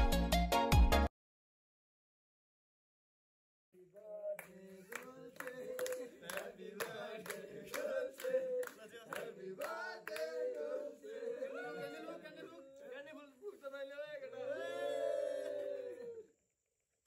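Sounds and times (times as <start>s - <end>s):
men singing together: 4.0s - 12.6s
hands clapping in time: 4.3s - 10.6s.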